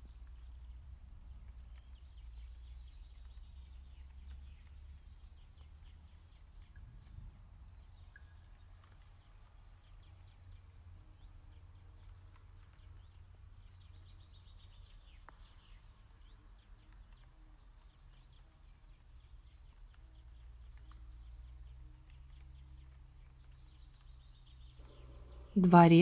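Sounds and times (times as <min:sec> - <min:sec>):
small bird singing: 0:01.8 - 0:07.0, 0:13.7 - 0:16.9, 0:23.4 - 0:25.6.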